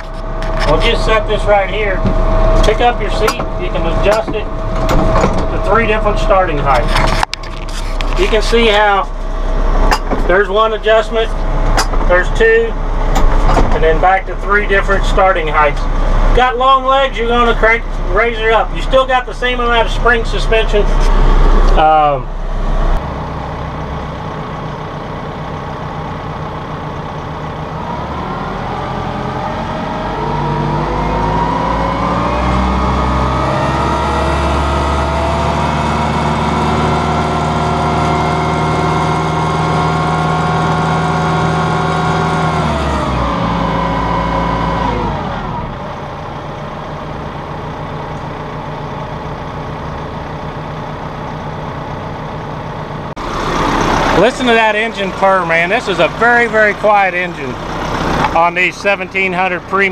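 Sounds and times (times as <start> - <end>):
tractor diesel engine idling and revving: 0.0 - 59.9.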